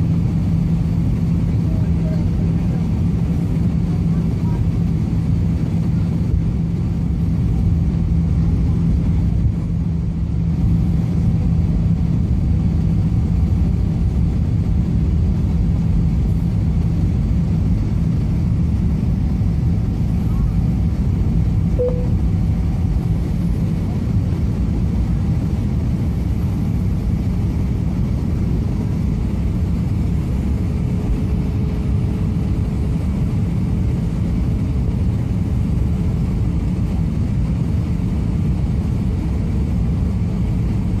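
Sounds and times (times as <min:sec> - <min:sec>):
low hum: 0:00.0 - 0:36.2
jet engine and airflow rumble: 0:00.0 - 0:41.0
faint higher tone: 0:21.8 - 0:22.3.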